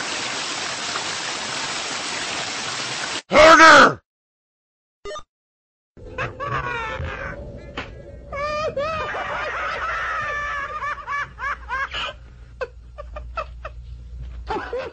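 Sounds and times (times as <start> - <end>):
high-pitched cartoon voice laughing: 6.1 - 7.4, 8.4 - 12.2.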